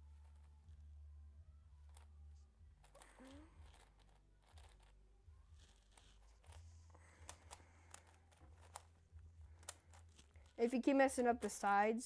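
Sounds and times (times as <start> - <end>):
faint low hum: 0.0 - 12.0
puzzle cube plastic clicks: 2.8 - 5.0, 5.6 - 9.0.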